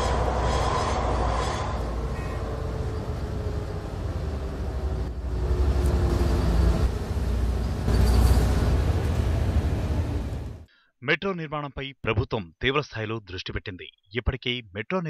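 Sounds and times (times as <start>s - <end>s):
street traffic rumble: 0.0s - 10.7s
train on elevated track: 0.0s - 10.7s.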